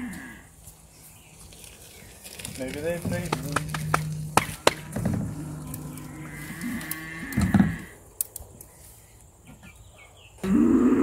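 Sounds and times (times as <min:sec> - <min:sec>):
sharp knocks: 0:03.0 - 0:05.4
cow mooing: 0:03.2 - 0:08.0.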